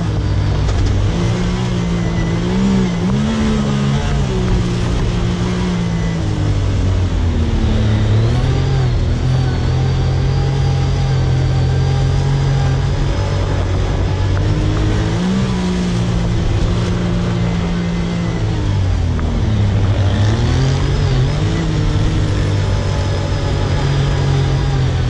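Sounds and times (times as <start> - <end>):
utility vehicle engine under load: 0.0 - 25.0.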